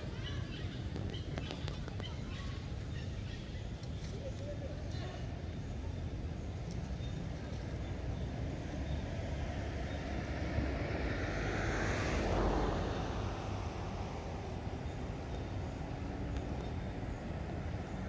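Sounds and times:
steady low rumble: 0:05.4 - 0:18.0
motor vehicle passing: 0:08.5 - 0:17.8.

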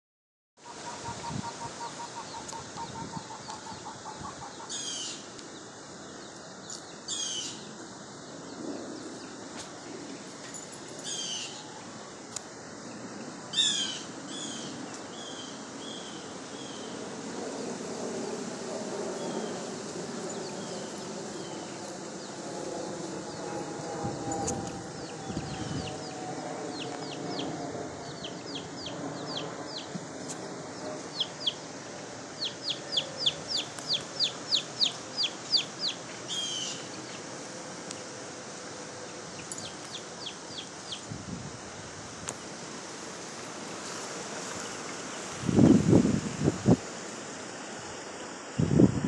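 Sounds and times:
baby chicks peeping: 0:32.4 - 0:36.0
lower bird call: 0:32.4 - 0:37.3.

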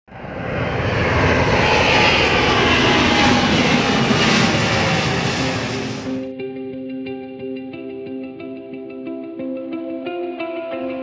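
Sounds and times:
faint high engine whine: 0:00.1 - 0:06.2
jet engines rushing: 0:00.1 - 0:06.3.

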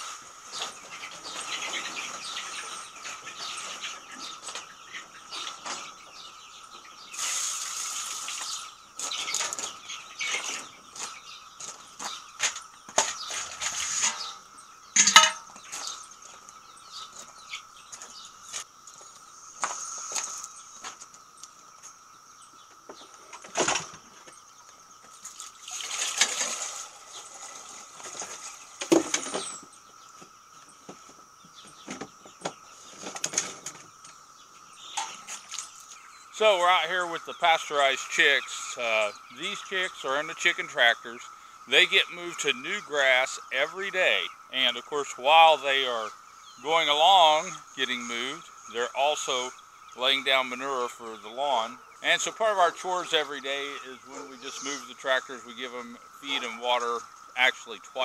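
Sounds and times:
faint hiss: 0:07.0 - 0:08.8, 0:18.5 - 0:21.6.

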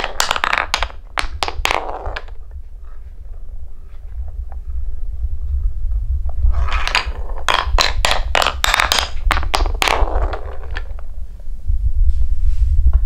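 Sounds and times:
balls clacking on wooden track: 0:00.0 - 0:02.6, 0:06.4 - 0:11.1
low rumble: 0:01.8 - 0:13.0.

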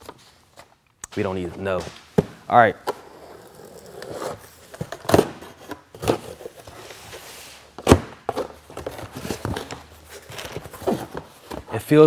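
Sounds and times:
cardboard scraping: 0:03.0 - 0:11.8.

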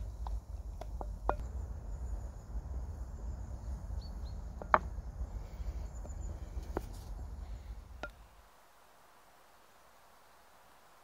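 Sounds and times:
low steady rumble: 0:00.0 - 0:08.5.

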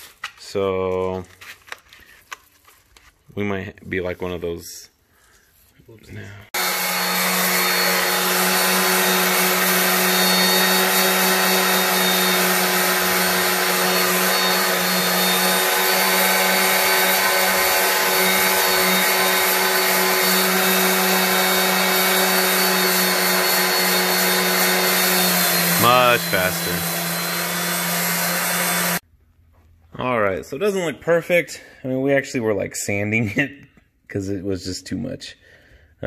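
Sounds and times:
electric sander on metal wheel: 0:06.6 - 0:29.0.

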